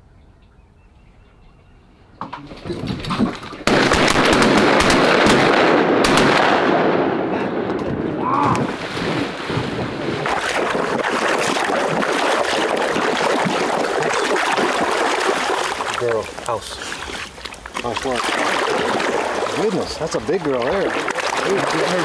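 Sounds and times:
water sloshing and splashing: 2.2 - 4.4, 8.5 - 22.0.

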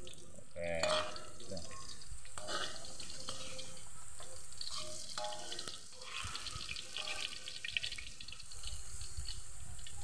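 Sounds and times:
tofu sizzling in hot oil: 0.0 - 10.0.

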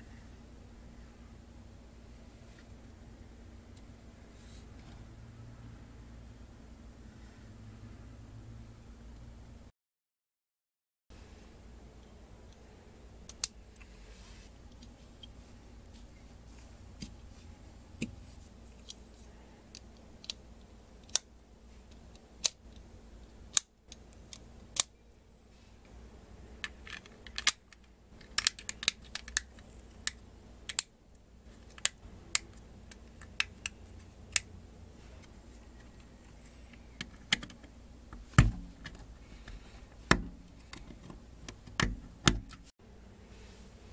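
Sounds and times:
faint low hum: 0.0 - 9.7, 11.1 - 43.9
plastic parts clicking: 26.6 - 30.9, 31.6 - 34.5, 36.7 - 39.1.

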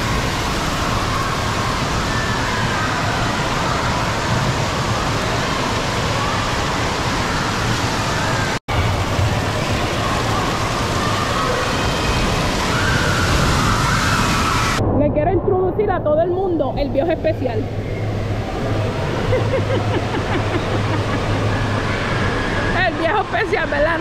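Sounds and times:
rushing splashing water: 0.0 - 14.8.

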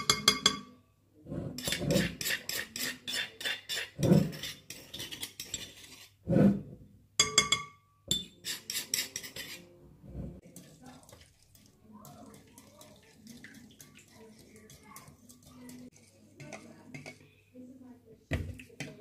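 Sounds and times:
metal spoon clinking in marble bowl: 0.0 - 0.8, 1.6 - 6.1, 7.2 - 9.7, 10.4 - 17.4.

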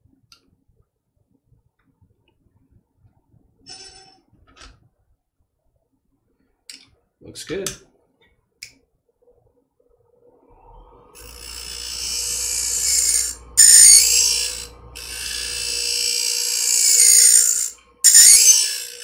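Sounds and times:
blade grinding on wheel: 10.5 - 19.0
sharpener motor hum: 10.5 - 19.0.

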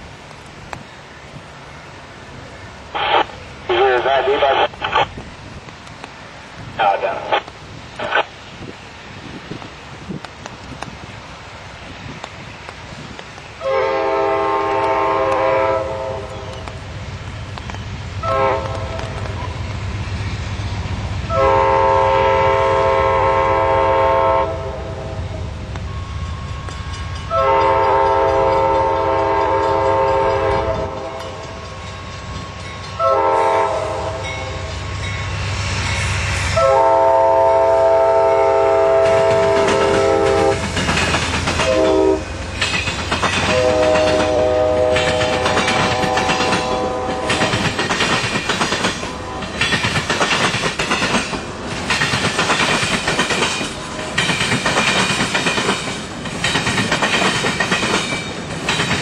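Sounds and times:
train rumble: 0.0 - 59.0
train air horn blasts: 13.6 - 16.6, 18.2 - 19.3, 21.3 - 31.6, 32.3 - 35.1, 36.0 - 40.7, 41.6 - 42.3, 43.5 - 47.6
wheels clacking over rail joints: 38.9 - 59.0.

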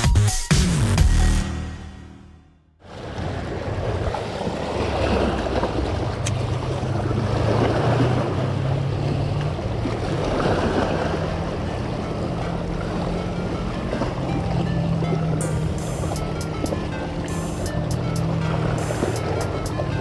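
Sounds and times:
waves splashing against rocks: 2.9 - 11.6.

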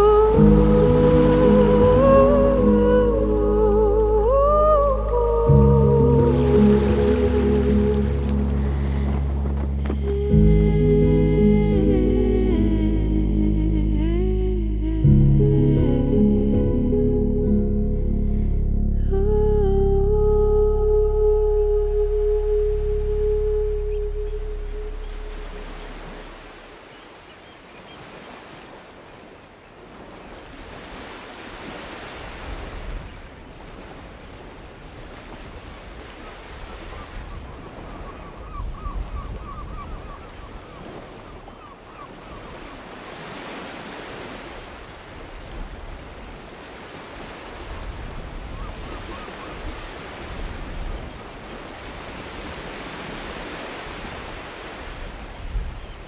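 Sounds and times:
wind: 0.0 - 56.0
waves washing against rocks: 6.3 - 10.5.

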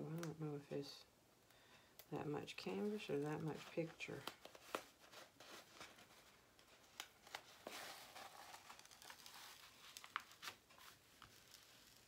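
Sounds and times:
plastic crinkling and rustling: 2.4 - 12.0.

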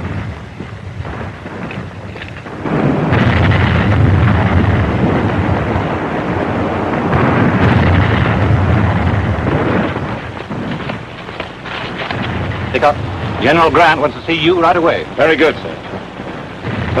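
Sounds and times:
loud continuous rumble: 0.0 - 17.0.

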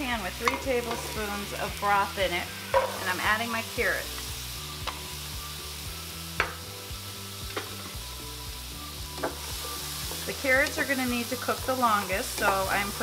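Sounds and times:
carrots sizzling in a pan: 0.0 - 13.0.

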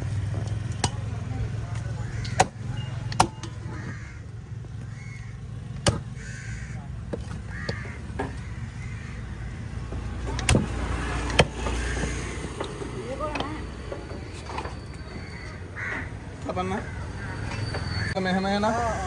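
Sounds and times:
crows cawing: 1.9 - 10.2, 11.6 - 12.9, 14.9 - 19.0.

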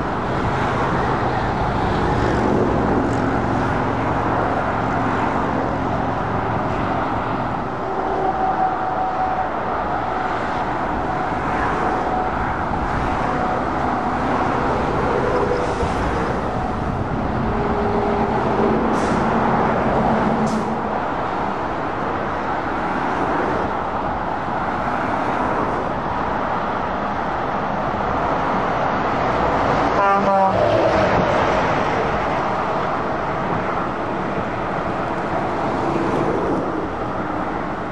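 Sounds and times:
diesel engine drone: 0.0 - 37.9
tyre noise of passing traffic: 0.0 - 37.9.

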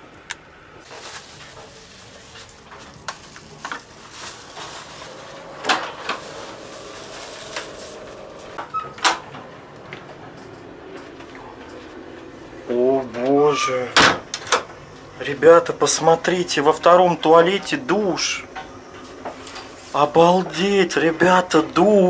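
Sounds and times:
train running noise: 0.8 - 20.6
doors and latches clacking: 8.6 - 10.6.

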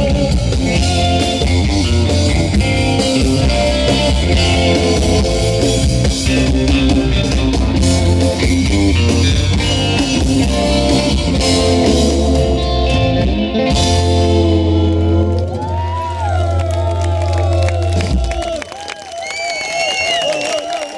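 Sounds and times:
drum kit: 0.0 - 16.3
electric bass: 0.0 - 18.6
electric lead guitar: 0.0 - 18.6.

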